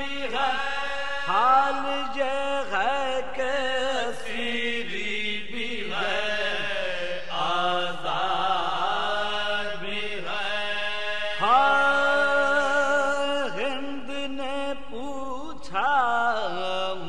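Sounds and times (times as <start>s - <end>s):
man chanting melodically: 0.0s - 17.0s.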